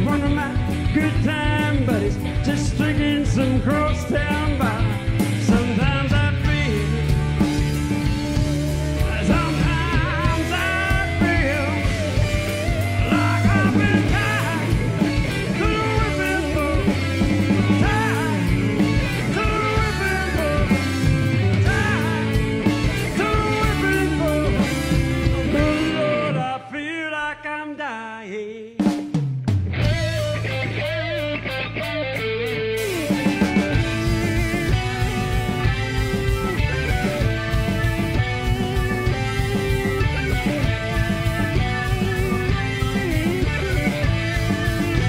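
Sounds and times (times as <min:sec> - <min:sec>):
live rock band playing: 0:00.0 - 0:26.8, 0:28.8 - 0:45.0
man singing: 0:00.0 - 0:29.1, 0:29.8 - 0:31.3.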